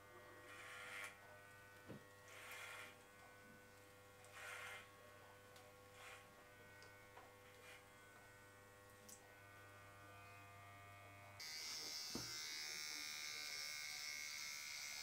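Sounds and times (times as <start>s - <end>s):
electric hair clippers humming: 0.2s - 5.0s, 5.9s - 15.0s
comb brushing through hair: 4.2s - 4.9s.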